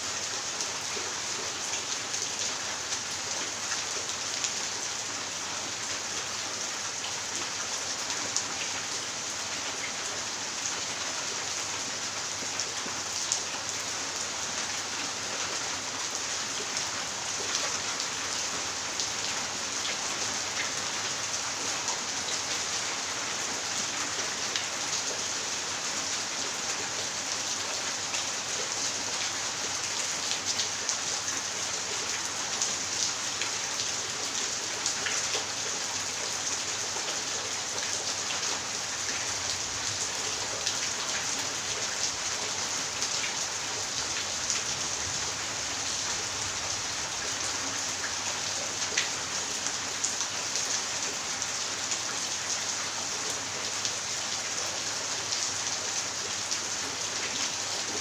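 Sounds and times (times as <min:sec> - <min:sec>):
rain falling on wet tiles: 0:00.0 - 0:58.0.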